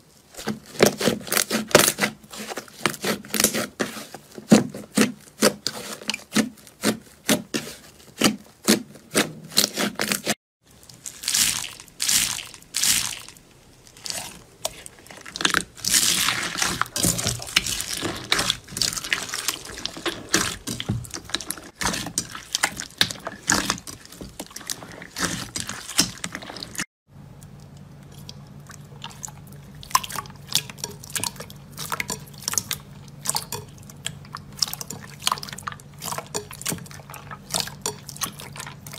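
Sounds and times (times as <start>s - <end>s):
slime squelching: 0.0s - 26.9s, 27.6s - 38.9s.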